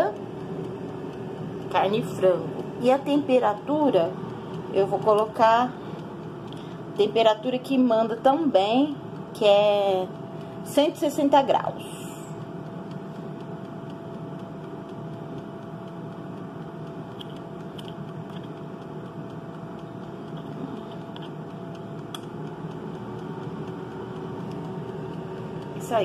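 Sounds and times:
air fryer humming: 0.0s - 26.0s
dial clicks: 17.1s - 18.7s.

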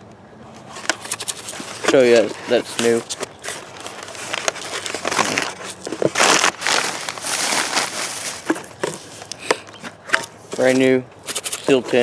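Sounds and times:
packaging crinkling: 0.8s - 8.8s.

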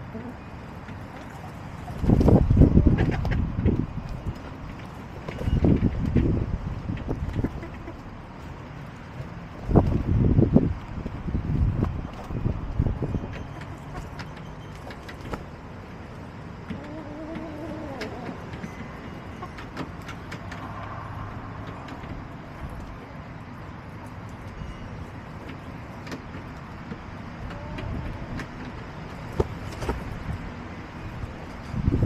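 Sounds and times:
distant traffic rumble: 0.0s - 32.0s
hens calling: 7.3s - 8.1s, 16.7s - 19.8s.

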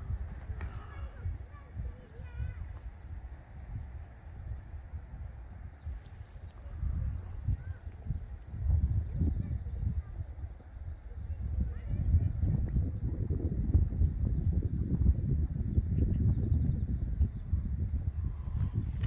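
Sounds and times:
cricket chirping: 0.0s - 19.0s
wind buffeting microphone: 0.0s - 19.0s.

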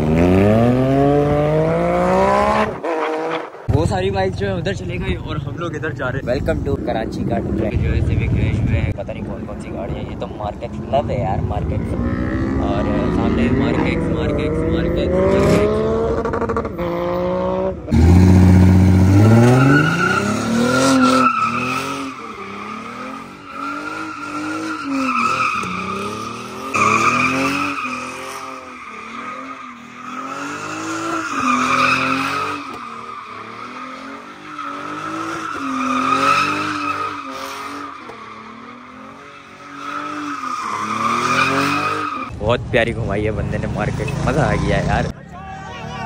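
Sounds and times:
car engine revving: 0.0s - 42.4s
tyres squealing and skidding: 18.0s - 42.4s.

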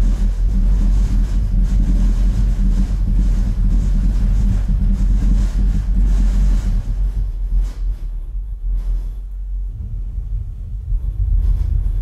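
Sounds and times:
deep bass rumble from subwoofer: 0.0s - 12.0s.

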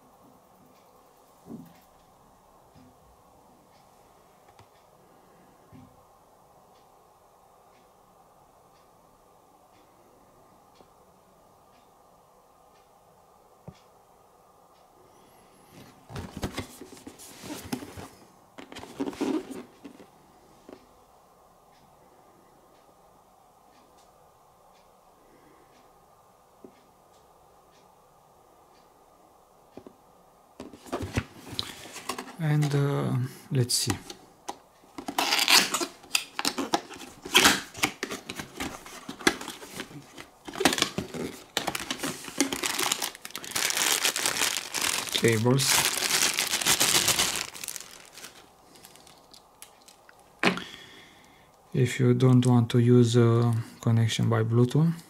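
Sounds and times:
packaging rustling and crinkling: 15.8s - 20.1s, 30.6s - 32.8s, 34.9s - 50.3s.

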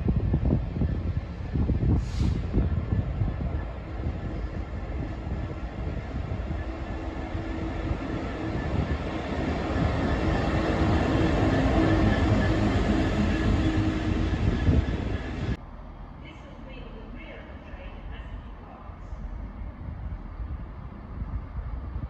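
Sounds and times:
wheels rumbling on rails: 0.0s - 15.6s
diesel locomotive engine: 0.0s - 22.0s.

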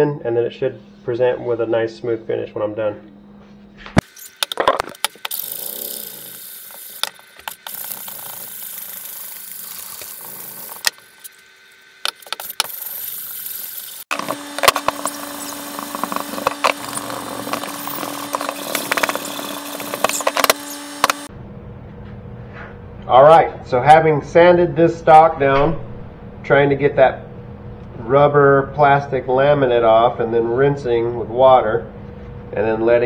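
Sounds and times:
steady motor hum: 0.0s - 25.3s
electric sander sanding: 4.4s - 21.3s.

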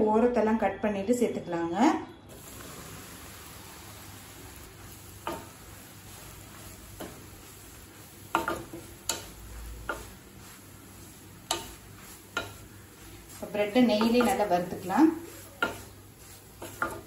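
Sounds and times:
bread sizzling in oil: 2.3s - 17.0s
spatula scraping a pan: 4.8s - 17.0s.

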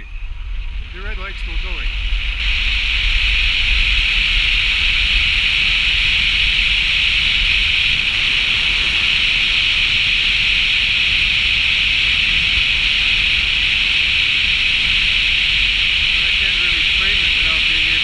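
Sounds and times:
car road and wind noise: 0.0s - 18.0s.

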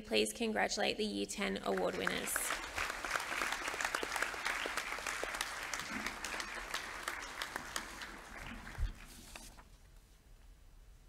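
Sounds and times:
audience applauding: 1.7s - 9.5s.

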